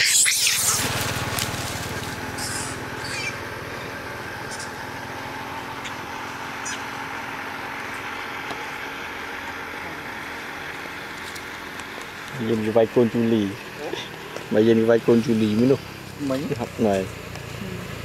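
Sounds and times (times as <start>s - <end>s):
macaque shrieks: 0.0s - 1.0s, 2.3s - 3.5s, 4.5s - 4.8s, 6.6s - 6.9s
steady low hum: 0.0s - 18.0s.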